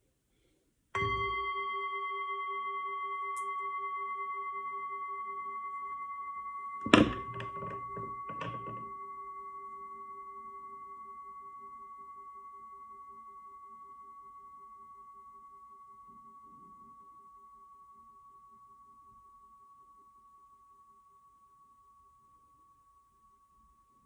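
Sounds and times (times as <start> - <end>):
singing bowl ringing: 1.0 - 24.0
sharp knock and clatter: 6.9 - 9.0.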